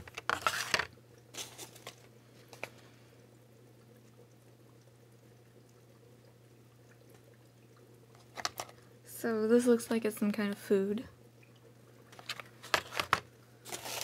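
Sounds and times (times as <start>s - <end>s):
packaging rustling and crinkling: 0.0s - 2.8s, 8.2s - 8.8s, 12.1s - 14.0s
faint low hum: 0.0s - 14.0s.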